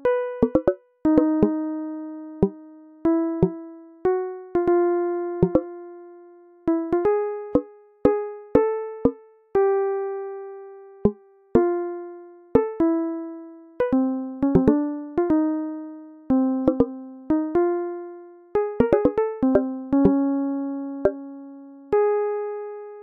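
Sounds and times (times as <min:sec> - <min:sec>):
ringing keyboard notes: 0:00.4 - 0:01.6, 0:05.4 - 0:05.6, 0:14.4 - 0:14.8, 0:16.7 - 0:16.9, 0:18.8 - 0:20.2.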